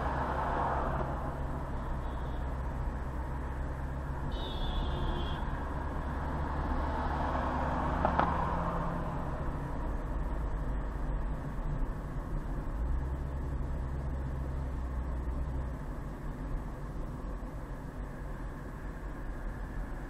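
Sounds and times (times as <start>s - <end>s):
car road and engine rumble: 0.0s - 20.0s.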